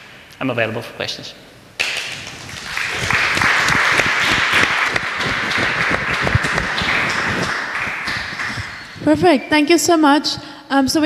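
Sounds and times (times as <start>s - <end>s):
audience applauding: 1.8s - 9.1s.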